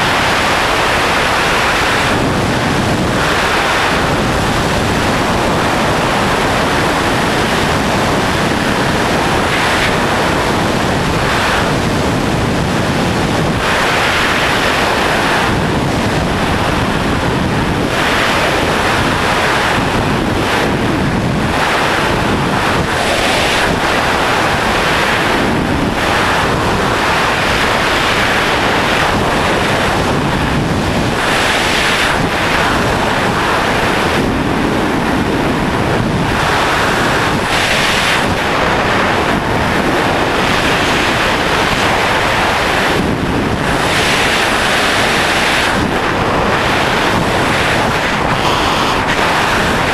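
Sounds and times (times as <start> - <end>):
freefall airflow buffeting microphone: 0.0 - 49.9.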